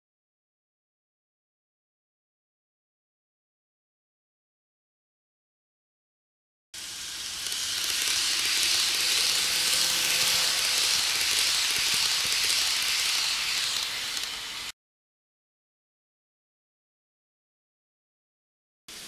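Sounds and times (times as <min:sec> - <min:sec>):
faint motor whine: 0:06.8 - 0:14.7
model train rumbling past: 0:06.8 - 0:14.7.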